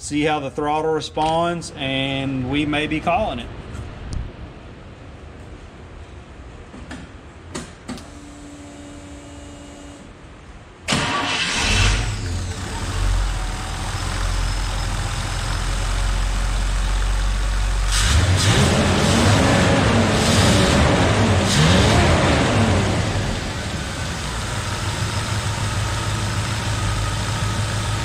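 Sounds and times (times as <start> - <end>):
engine starting and idling: 10.9 - 19.4.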